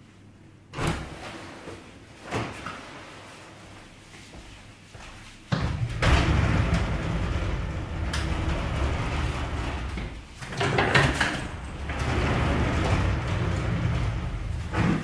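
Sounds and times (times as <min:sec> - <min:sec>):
sliding door rumbling on track: 0:05.7 - 0:15.0.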